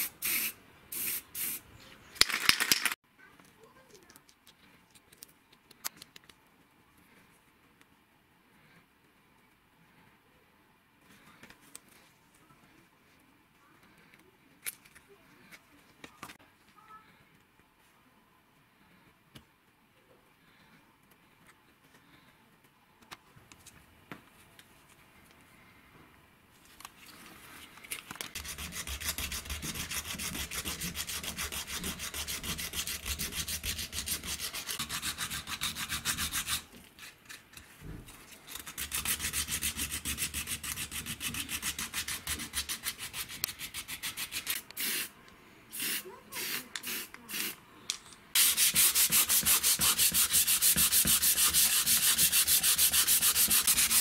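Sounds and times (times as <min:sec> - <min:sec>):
sandpaper strokes: 0:28.4 - 0:36.7, 0:38.6 - 0:45.1, 0:48.4 - 0:54.0
abrasive pad rubbing: 0:48.4 - 0:54.0.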